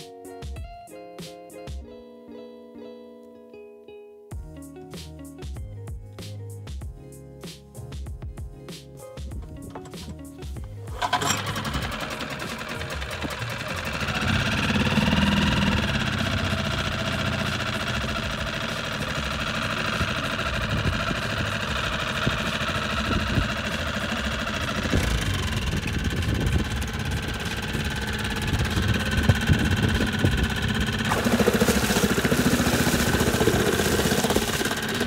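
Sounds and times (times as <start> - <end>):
gear shift clunk: 9.4 - 11.6
outboard engine running: 9.4 - 35.0
recoil starter cord pull: 9.4 - 35.0.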